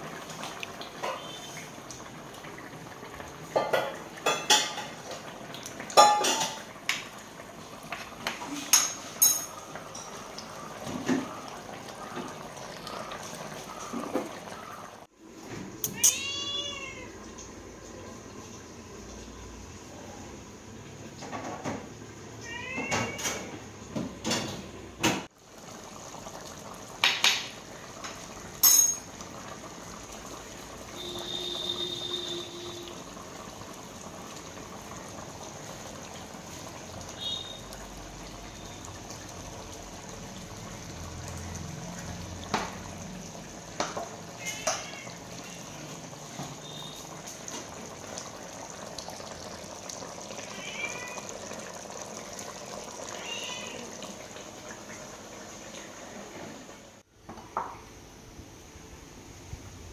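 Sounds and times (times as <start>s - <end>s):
curry bubbling in a pot: 0.0s - 15.5s, 25.2s - 57.7s
pots and utensils knocking: 3.5s - 5.1s, 6.0s - 6.7s, 8.3s - 10.2s, 28.6s - 29.1s
cat meowing: 15.8s - 17.2s, 22.4s - 23.6s, 44.4s - 45.6s, 50.3s - 51.6s, 53.1s - 54.0s.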